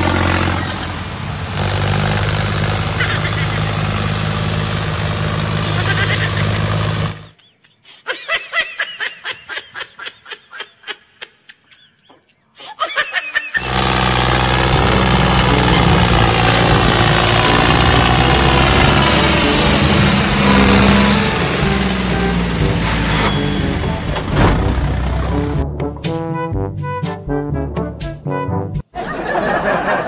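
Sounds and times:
engine-like drone: 0.0s - 7.3s, 13.6s - 25.6s
rapid high-pitched laughter: 3.0s - 3.6s, 7.4s - 13.6s.

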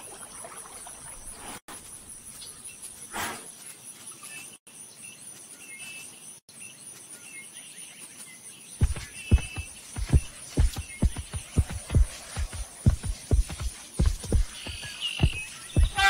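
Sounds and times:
soft nature hiss: 0.0s - 16.0s
heavy low footfall thuds: 8.8s - 16.0s.

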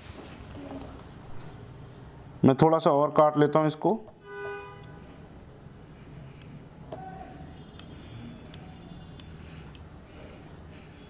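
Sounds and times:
blade ticking on solder: 6.4s - 6.6s, 7.7s - 9.9s.

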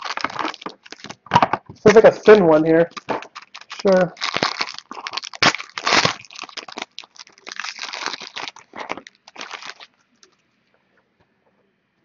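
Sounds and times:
foil wrapper tearing and crinkling: 0.0s - 1.3s, 1.9s - 10.4s.

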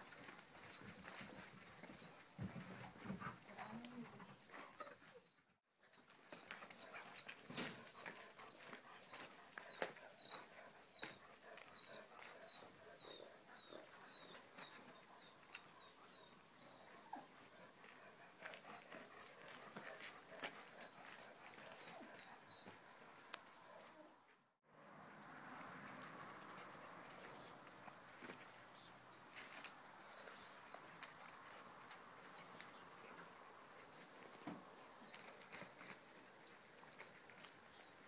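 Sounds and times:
dog paws clicking and scuffing: 0.0s - 4.6s, 5.9s - 12.7s, 17.7s - 24.0s, 25.6s - 38.0s.

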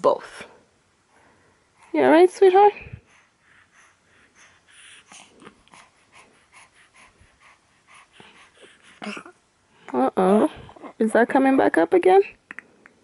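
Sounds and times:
baby snorting and grunting: 8.1s - 9.4s.

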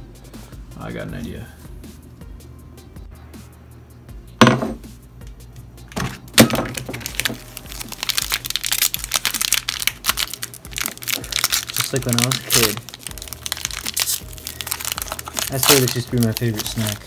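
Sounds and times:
plate knocking on wooden table: 4.4s - 4.8s
plastic wrapper crinkling: 6.4s - 17.0s.

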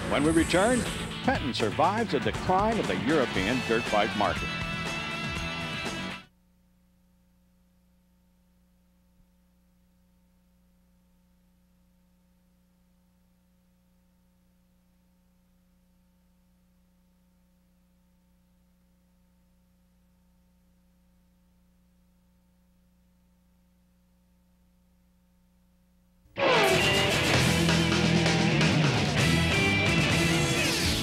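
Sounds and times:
faint electrical hum and hiss: 6.3s - 26.4s.

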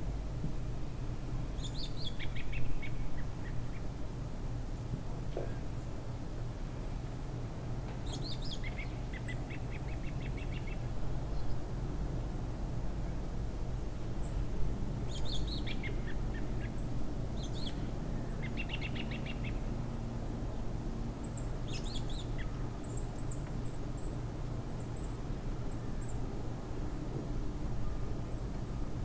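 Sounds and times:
songbirds chirping: 1.5s - 4.0s, 7.9s - 11.8s, 15.0s - 19.8s, 21.2s - 26.3s.

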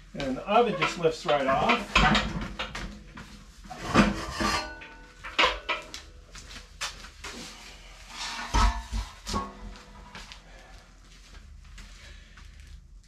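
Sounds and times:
metal knocks and scrapes: 0.2s - 5.9s, 8.0s - 10.2s.

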